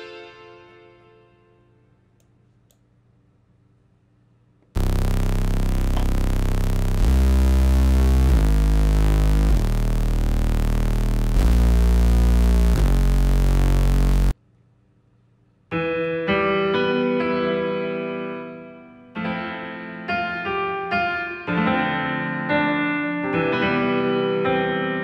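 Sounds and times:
deep synthesizer bass notes: 0:04.8 - 0:14.4.

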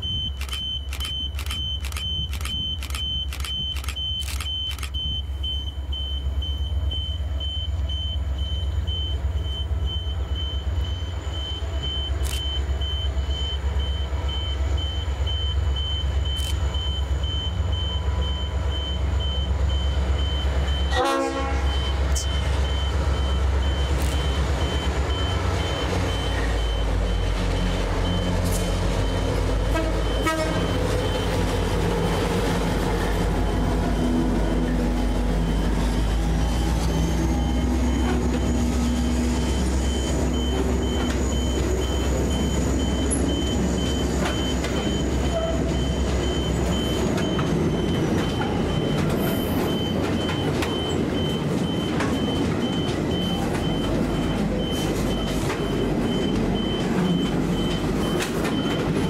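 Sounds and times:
diesel locomotive engine rumble: 0:00.0 - 0:59.0
regular clicks: 0:00.3 - 0:05.0
pitched horn blast: 0:20.9 - 0:21.8, 0:29.7 - 0:30.7.

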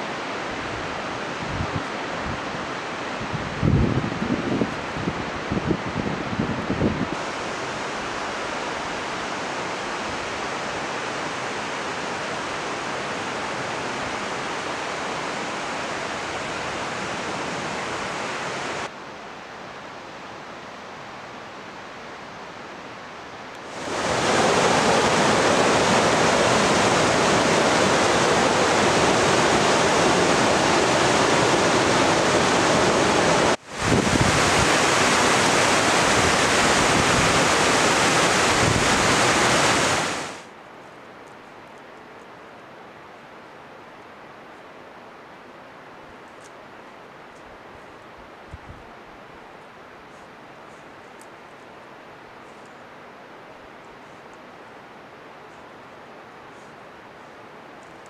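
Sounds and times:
river flowing over stones: 0:07.2 - 0:18.9, 0:23.6 - 0:40.5
steady rushing noise: 0:23.6 - 0:40.5.

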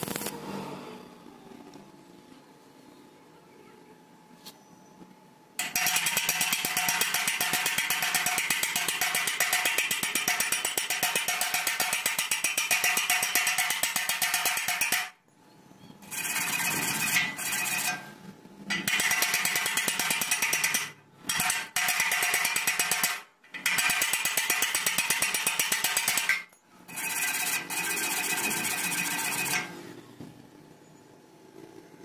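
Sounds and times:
wire brush scratching steel: 0:05.6 - 0:15.2, 0:16.0 - 0:30.0.

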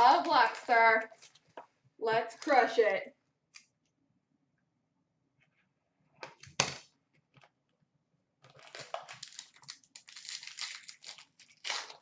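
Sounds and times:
cardboard and packaging rustling: 0:00.0 - 0:01.8, 0:08.5 - 0:12.0.

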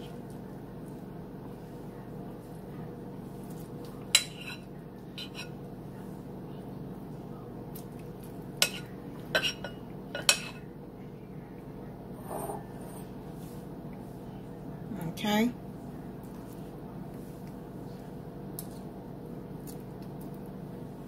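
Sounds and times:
steady low hum: 0:00.0 - 0:21.0
metal spoon clinking on bowls: 0:08.6 - 0:10.6.

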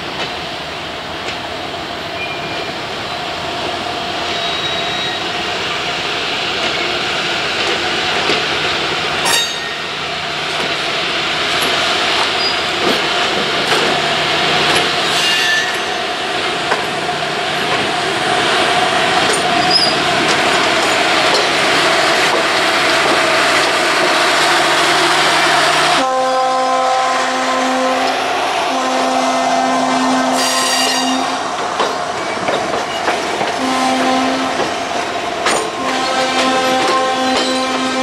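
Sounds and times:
passenger train rolling past: 0:00.0 - 0:38.0
wheels clicking on rails: 0:31.6 - 0:37.8.

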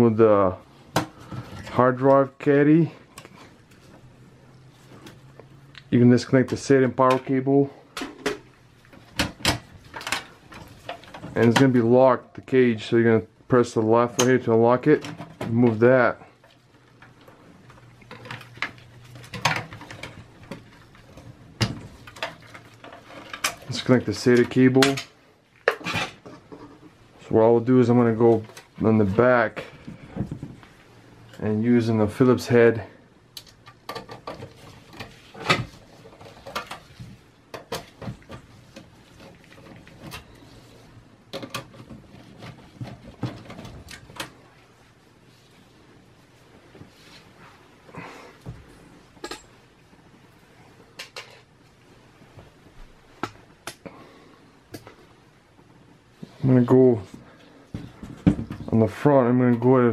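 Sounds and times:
clicks and knocks of computer parts: 0:08.0 - 0:11.7, 0:18.0 - 0:23.8, 0:33.4 - 0:40.4, 0:41.3 - 0:44.4.

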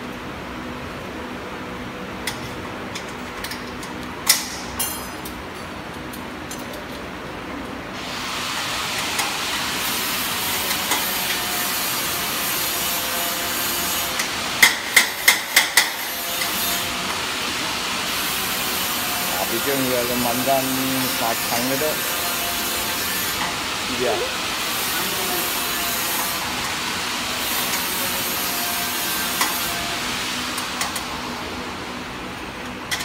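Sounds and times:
steady hiss: 0:16.4 - 0:31.3.

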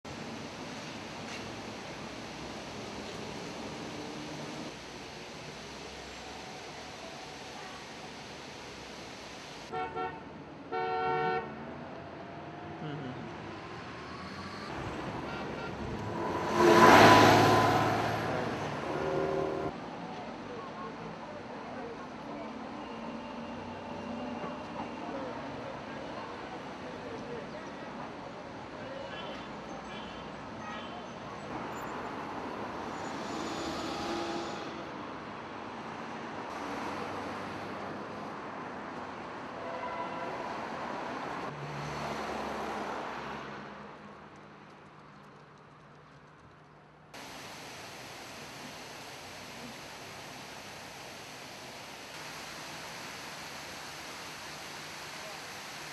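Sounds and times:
road traffic: 0:00.0 - 0:55.9
bus passing: 0:11.6 - 0:20.0.

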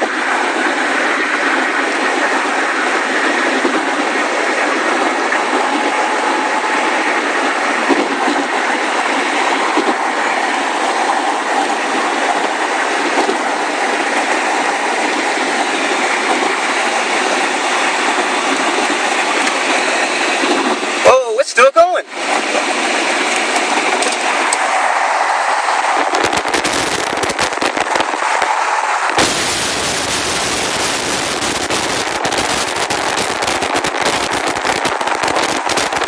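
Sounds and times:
road and wind noise inside car: 0:25.8 - 0:36.0.

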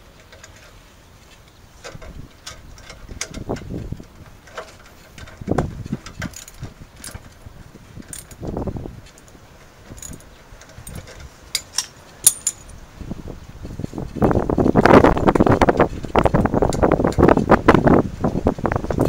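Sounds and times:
rustling rumble: 0:00.0 - 0:19.0
metal hardware and tools clinking: 0:01.8 - 0:12.8.

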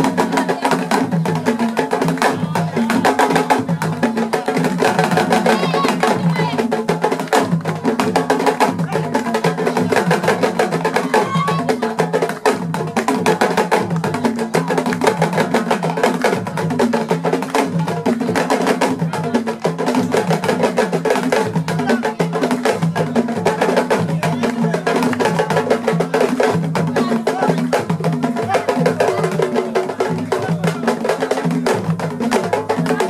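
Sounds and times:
drums playing fast rhythm: 0:00.0 - 0:33.0.

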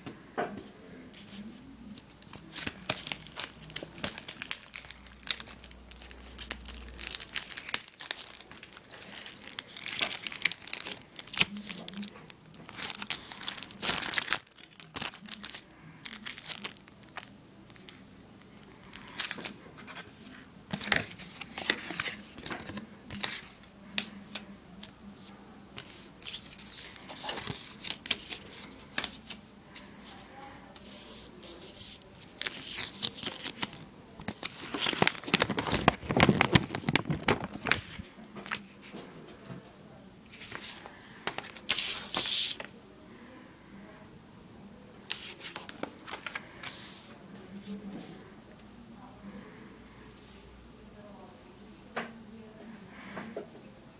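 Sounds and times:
cardboard and paper rustling: 0:01.2 - 0:17.9, 0:18.7 - 0:23.6, 0:25.8 - 0:30.2, 0:30.8 - 0:39.1, 0:40.3 - 0:42.7, 0:45.1 - 0:48.2.

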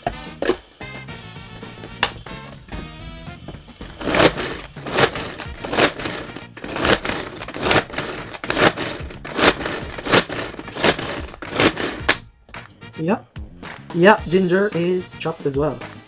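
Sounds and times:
pull-cord chopper whirring rasp: 0:01.7 - 0:12.3.

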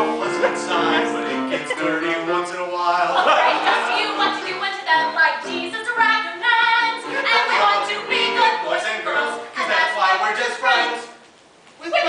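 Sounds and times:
woman singing: 0:03.5 - 0:08.8.

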